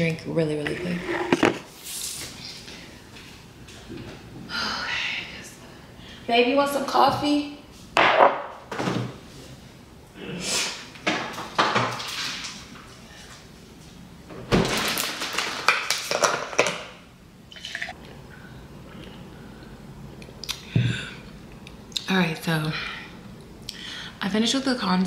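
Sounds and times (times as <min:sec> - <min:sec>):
drink pouring into glass: 0:17.5 - 0:18.0.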